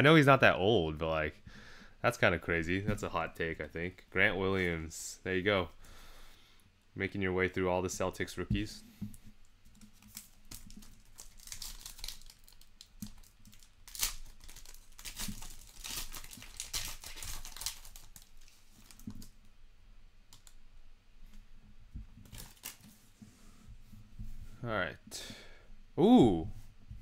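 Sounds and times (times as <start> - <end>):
foil wrapper tearing and crinkling: 10.0 - 19.0, 22.2 - 22.9.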